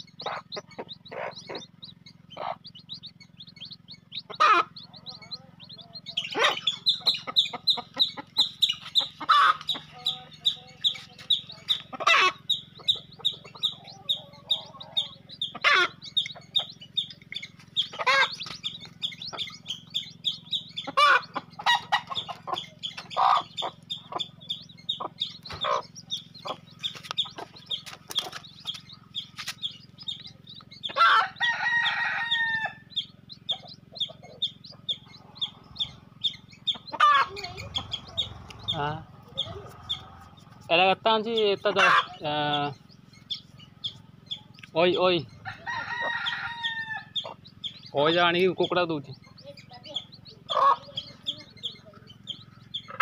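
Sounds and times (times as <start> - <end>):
chickens clucking: 0.0 - 53.0
high peeping: 0.0 - 53.0
loud chicken call: 4.4 - 4.8, 9.2 - 9.8, 12.0 - 12.5, 14.0 - 16.0, 18.0 - 18.4, 20.8 - 22.2, 30.9 - 32.9, 36.9 - 37.6, 41.8 - 42.2, 45.4 - 47.4
rooster crowing: 31.0 - 32.9, 45.4 - 47.2.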